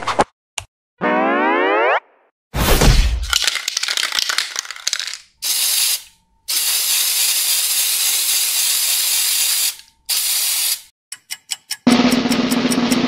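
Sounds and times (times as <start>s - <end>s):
spray-paint can rattling: 3.3s - 10.9s
aerosol spray hissing: 5.4s - 10.9s.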